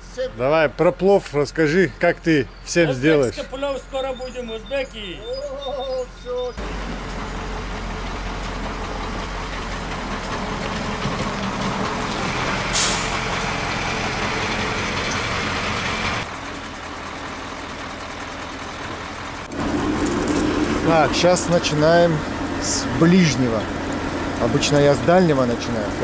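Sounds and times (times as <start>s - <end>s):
truck engine running: 0.0s - 26.0s
air brakes hissing: 12.7s - 13.4s.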